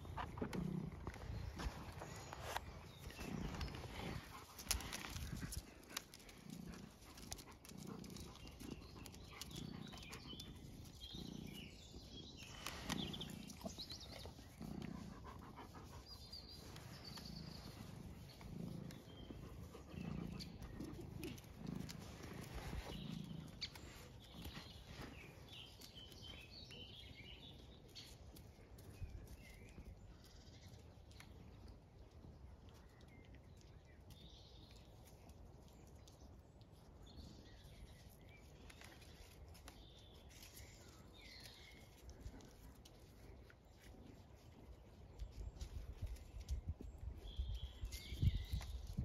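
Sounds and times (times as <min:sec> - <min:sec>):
dog panting: 0:14.6 - 0:16.4.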